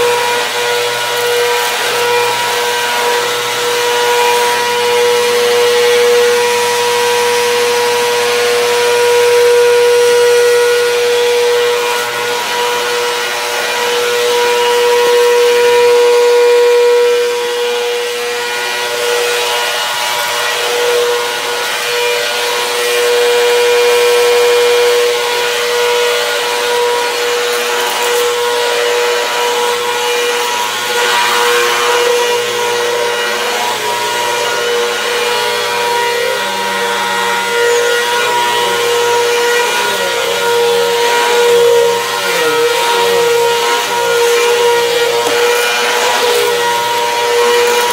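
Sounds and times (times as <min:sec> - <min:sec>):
vacuum cleaner running: 0:00.0 - 0:47.9.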